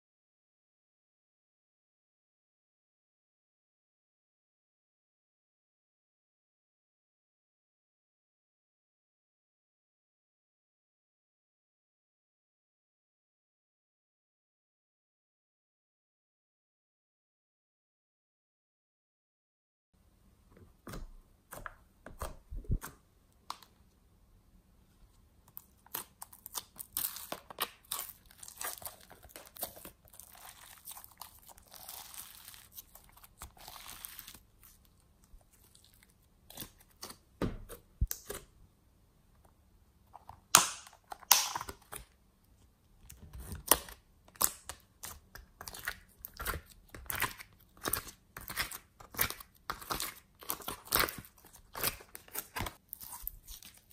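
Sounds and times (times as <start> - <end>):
slime crackling and tearing: 25.5 - 37.2, 43.6 - 53.9.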